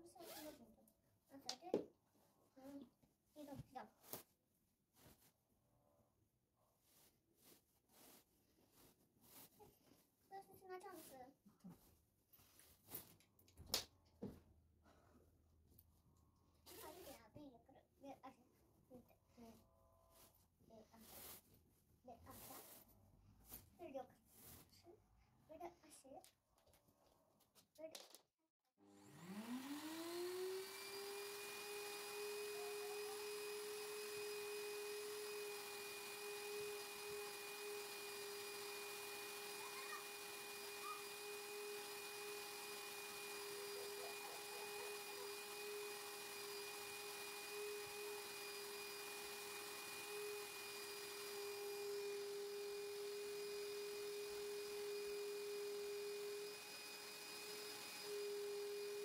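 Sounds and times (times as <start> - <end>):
vacuum cleaner motor running: 28.8 - 59.0.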